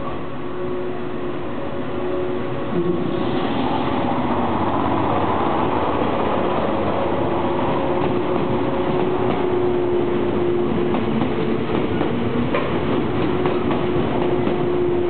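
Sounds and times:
wheels clicking over rail joints: 10.9s - 14.7s.

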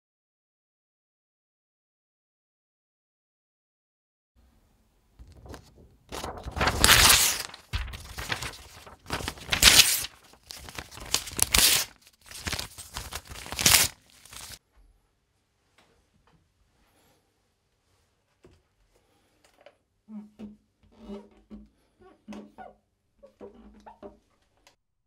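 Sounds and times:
paper crinkling: 5.2s - 14.6s
paper tearing: 5.3s - 14.6s.

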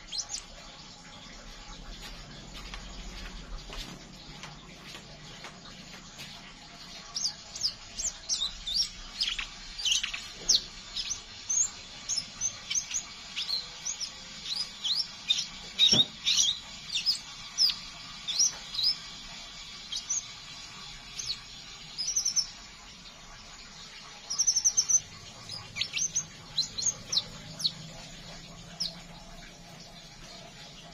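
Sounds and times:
bird chirping high and thin: 0.0s - 0.5s, 6.8s - 22.6s, 24.0s - 29.0s.

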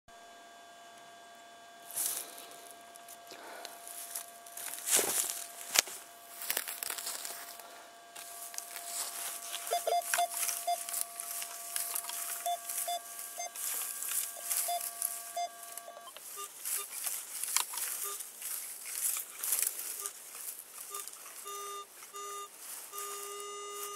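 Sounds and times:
dry grass rustling: 1.9s - 23.9s
metal detector tone: 8.2s - 20.2s, 20.8s - 23.9s
short high beeps: 9.4s - 16.9s, 20.9s - 23.9s.

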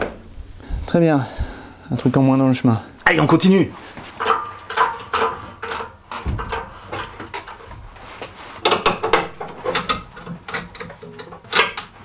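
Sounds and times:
metal clicks and clunks: 4.2s - 12.0s
dull thump: 6.2s - 6.6s.

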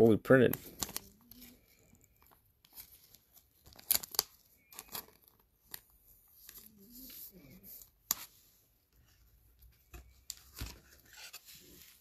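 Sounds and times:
plastic card sleeve crinkling: 0.3s - 8.4s.

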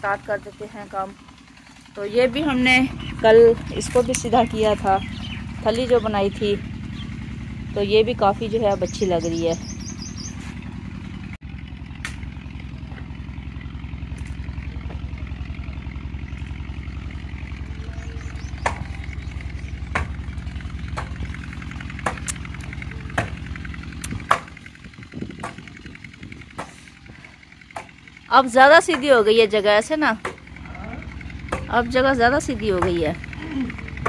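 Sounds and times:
engine chugging: 0.0s - 34.0s.

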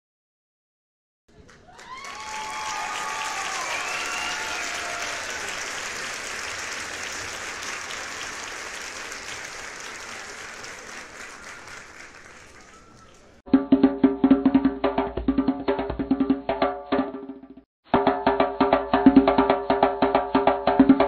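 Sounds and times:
children clapping: 1.3s - 13.4s
children shouting: 1.7s - 5.6s.

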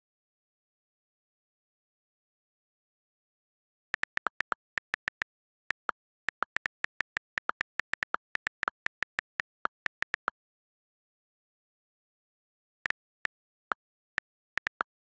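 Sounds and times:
on-screen keyboard key clicks: 4.0s - 10.3s.

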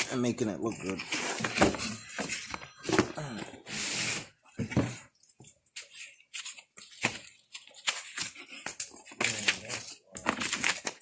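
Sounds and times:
plastic wrap crinkling: 5.1s - 11.0s.

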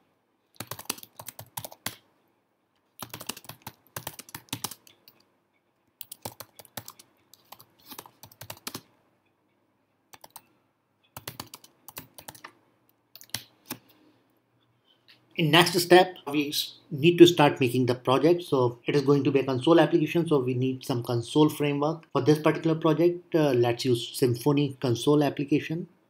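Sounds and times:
typing on computer keyboard: 0.6s - 2.0s, 3.0s - 5.3s, 6.0s - 8.9s, 10.1s - 10.5s, 11.1s - 13.8s.

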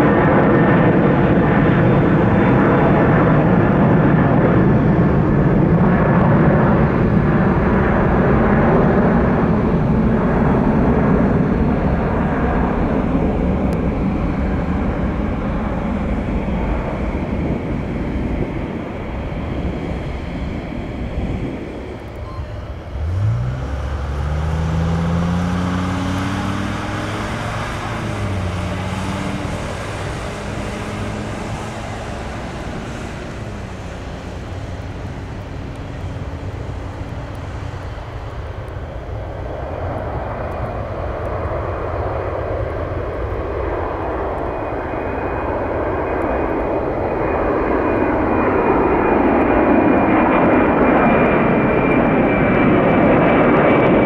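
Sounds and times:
airliner engines: 0.0s - 54.0s
high engine whine: 0.0s - 54.0s.

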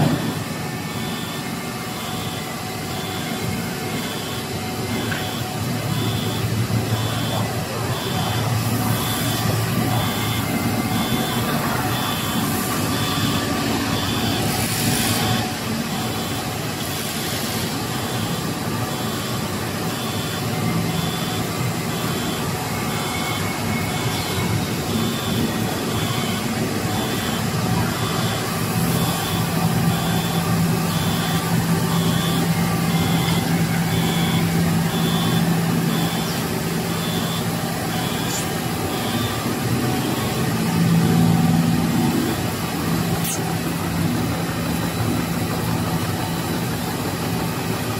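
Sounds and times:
machine hum and whir: 0.0s - 47.9s
short high beeps: 37.0s - 39.4s, 43.2s - 43.4s.

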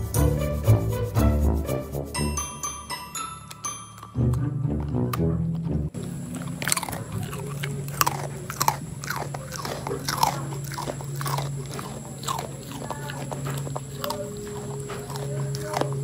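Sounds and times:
dog crunching biscuit: 3.5s - 16.0s.

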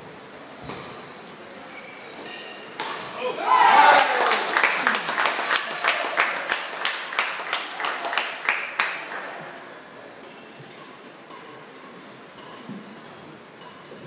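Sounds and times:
people shouting: 3.2s - 4.6s
spectators clapping: 3.7s - 9.5s.

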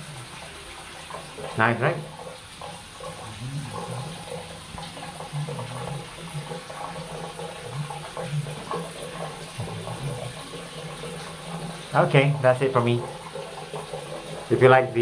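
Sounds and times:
shower water spraying and splashing: 0.0s - 15.0s.

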